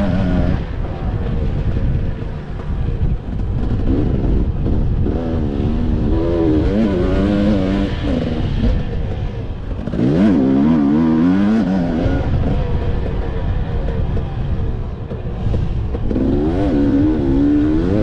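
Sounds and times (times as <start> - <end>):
dirt bike engine revving: 0.0 - 2.7, 3.3 - 14.5, 16.0 - 18.0
wind rumble on microphone: 0.0 - 18.0.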